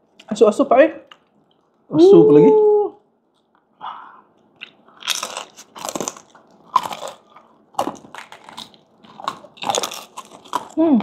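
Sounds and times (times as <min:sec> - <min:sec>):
crunchy food being chewed: 0:04.3 - 0:11.0.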